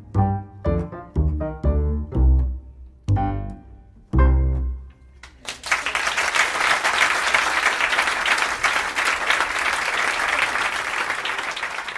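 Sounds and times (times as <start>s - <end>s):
audience applause: 5.2s - 11.9s.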